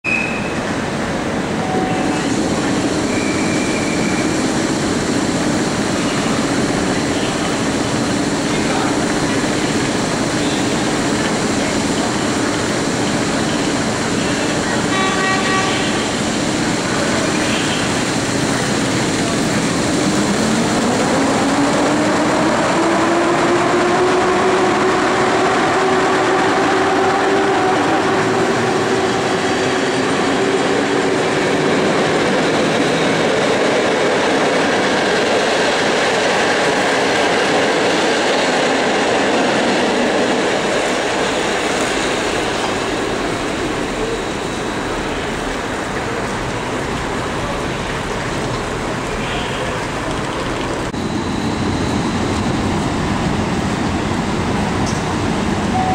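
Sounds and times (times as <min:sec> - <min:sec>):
train horn: 0:14.8 - 0:16.2.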